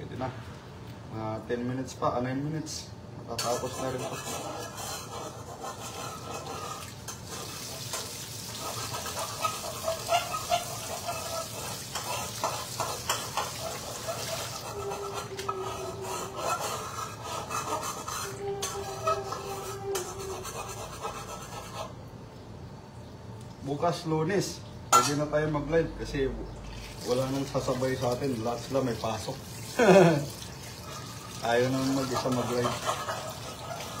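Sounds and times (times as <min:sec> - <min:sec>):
tap water running into sink: 0:06.8 - 0:14.6.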